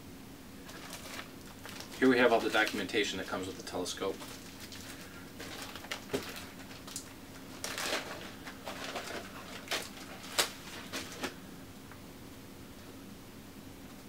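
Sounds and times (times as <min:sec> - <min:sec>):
faint steady hum: 0:00.0 - 0:14.0
paper rustling and crinkling: 0:00.6 - 0:11.4.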